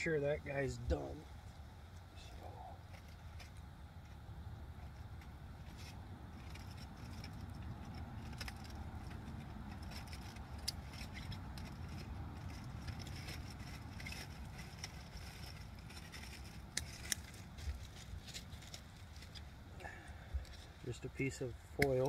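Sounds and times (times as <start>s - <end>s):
campfire crackling and popping: 0.5s - 21.0s, 21.6s - 22.0s.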